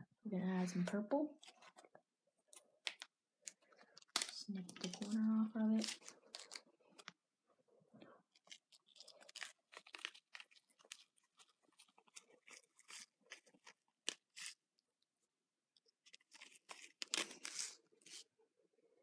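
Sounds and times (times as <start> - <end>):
plastic packet crinkling: 2.5 - 7.2, 8.3 - 14.7, 15.9 - 18.2.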